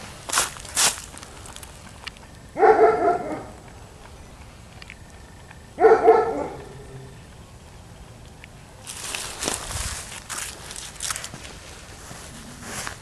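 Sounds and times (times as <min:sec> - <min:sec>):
dog barking: 0:02.6 - 0:03.6, 0:05.8 - 0:06.8.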